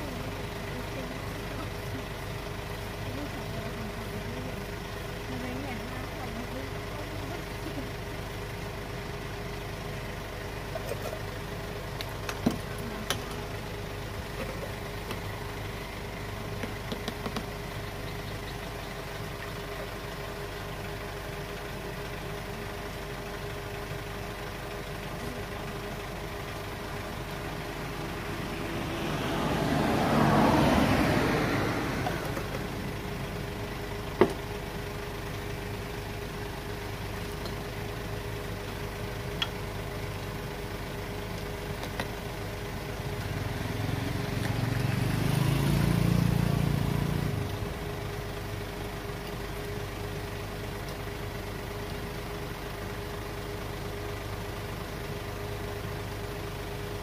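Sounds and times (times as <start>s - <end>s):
street traffic hum: 0.0s - 57.0s
vehicle passing: 27.4s - 33.2s, 43.4s - 47.6s.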